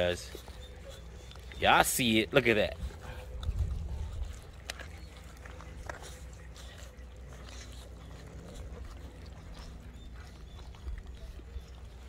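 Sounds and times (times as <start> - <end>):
puppies chewing and licking: 0.0 - 12.0
low steady rumble: 2.6 - 12.0.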